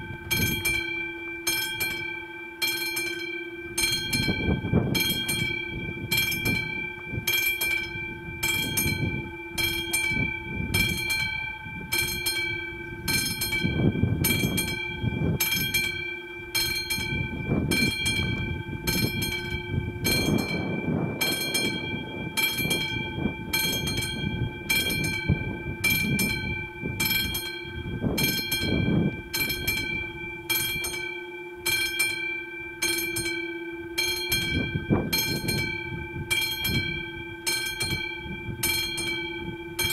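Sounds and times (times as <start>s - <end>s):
level crossing warning bell ringing: 0.0s - 39.9s
low uneven rumble: 17.3s - 27.0s.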